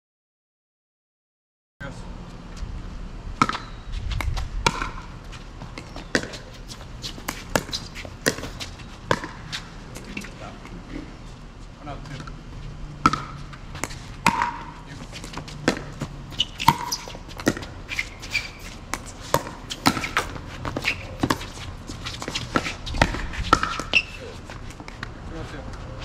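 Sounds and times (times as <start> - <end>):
ball bouncing on court: 3.4 - 10.8, 12.0 - 25.1
shoe squeaks: 3.6 - 4.3, 5.2 - 11.4, 14.8 - 24.9.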